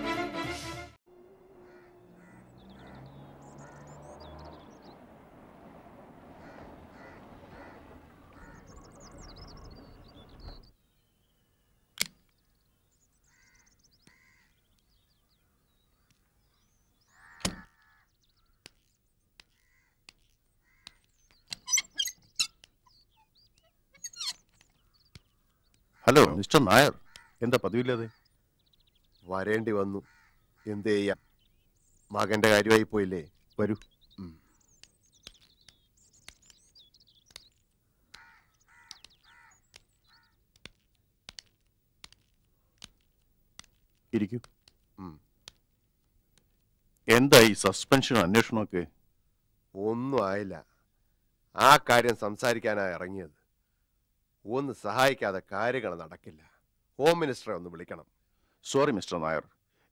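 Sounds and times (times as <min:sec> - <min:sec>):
small birds twittering: 0:01.3 - 0:48.7
crows cawing: 0:01.5 - 0:04.2, 0:06.2 - 0:10.1, 0:13.2 - 0:18.8, 0:19.4 - 0:21.2, 0:24.0 - 0:26.2, 0:26.9 - 0:28.4, 0:29.9 - 0:31.4, 0:37.8 - 0:40.8.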